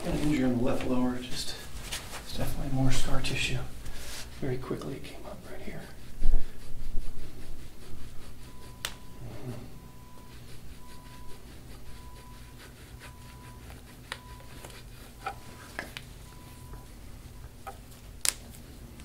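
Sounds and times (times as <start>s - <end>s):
scraping tool rubbing on skin: 1.8s - 16.8s.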